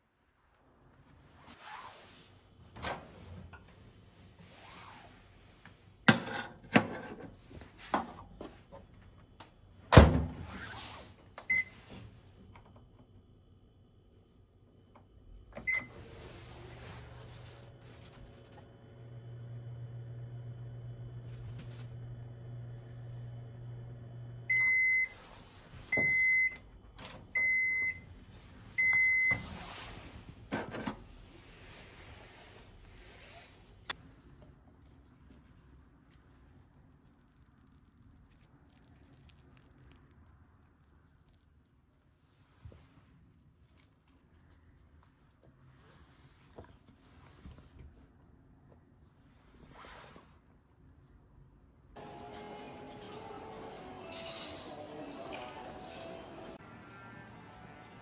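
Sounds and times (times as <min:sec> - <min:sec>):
microwave beeps: 0:11.5 - 0:11.8, 0:15.6 - 0:16.0, 0:24.4 - 0:25.2, 0:25.9 - 0:26.6, 0:27.3 - 0:28.1, 0:28.8 - 0:29.5
microwave oven humming: 0:11.5 - 0:29.6, 0:51.9 - 0:58.0.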